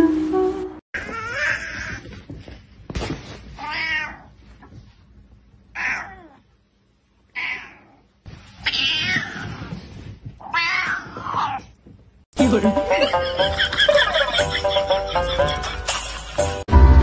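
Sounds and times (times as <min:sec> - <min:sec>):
cat meowing angrily: 0:05.7 - 0:06.4, 0:07.3 - 0:08.0, 0:08.6 - 0:09.7, 0:10.4 - 0:11.7.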